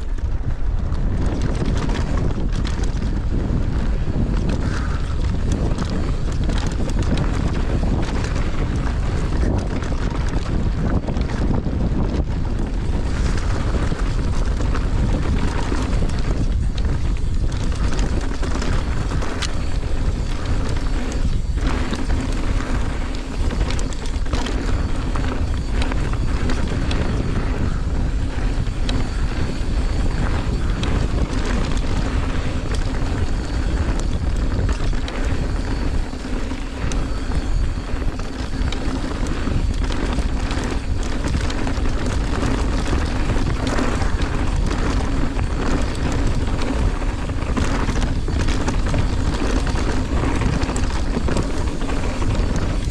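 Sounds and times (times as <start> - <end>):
bike clattering over rough trail: 0.0 - 52.9
wind on camera microphone: 0.0 - 52.9.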